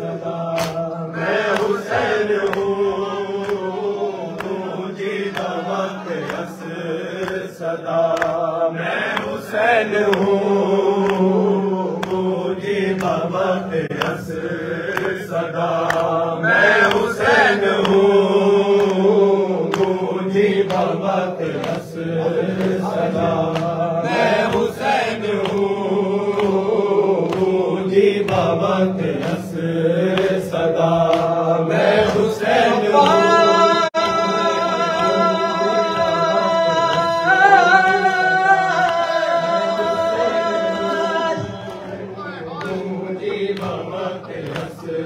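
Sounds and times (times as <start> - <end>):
lead voice chanting: 0.0 - 28.4, 29.0 - 45.0
men chanting a lament: 0.0 - 45.0
chest-beating slaps: 0.5 - 10.4, 12.0 - 19.1, 19.7 - 33.3, 42.6 - 45.0.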